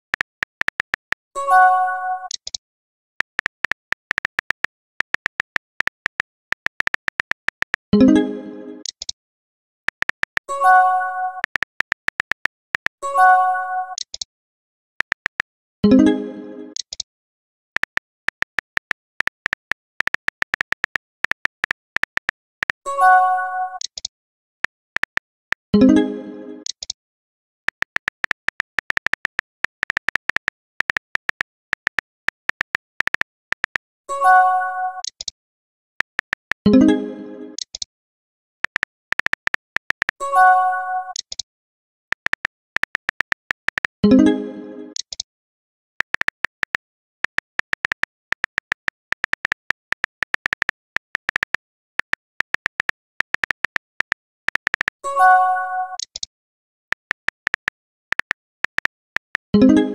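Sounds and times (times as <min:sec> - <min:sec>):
phone keyboard key clicks: 0:00.0 - 0:01.3, 0:02.3 - 0:07.9, 0:08.8 - 0:09.2, 0:09.8 - 0:10.5, 0:11.4 - 0:13.0, 0:15.0 - 0:15.6, 0:17.8 - 0:22.8, 0:23.8 - 0:25.7, 0:26.7 - 0:27.0, 0:27.6 - 0:34.0, 0:36.0 - 0:36.6, 0:37.6 - 0:37.9, 0:38.6 - 0:40.2, 0:41.1 - 0:41.4, 0:42.1 - 0:44.0, 0:45.0 - 0:45.2, 0:46.0 - 0:55.0, 0:56.0 - 0:59.5.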